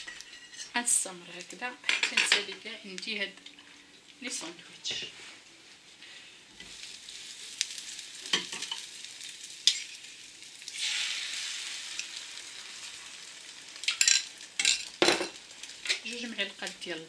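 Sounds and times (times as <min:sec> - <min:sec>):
oil sizzling in frying pan: 0:05.7 - 0:17.0.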